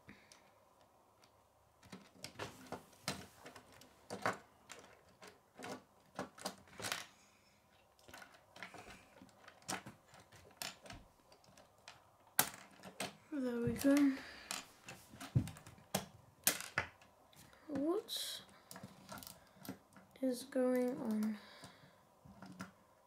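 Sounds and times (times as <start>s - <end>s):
plastic pieces clicking and snapping: 0.2s - 2.4s, 3.0s - 14.7s, 15.4s - 17.1s.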